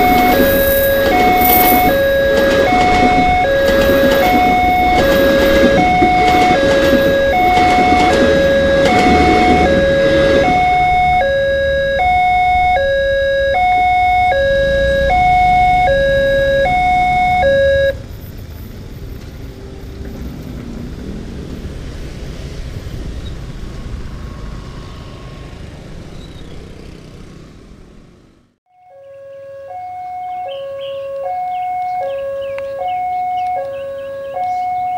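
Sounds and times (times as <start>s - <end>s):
level crossing two-note alarm: 0.0s - 18.0s, 28.7s - 34.9s
motorcycle engines running: 0.0s - 28.6s
passing train rumble: 0.0s - 28.6s.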